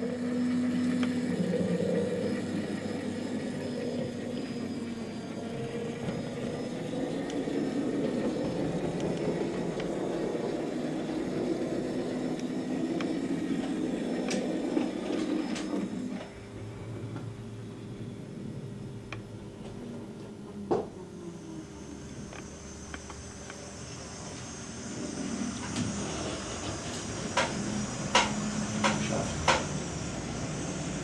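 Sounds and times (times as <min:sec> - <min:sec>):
model train rolling on track: 0:00.0 - 0:16.3.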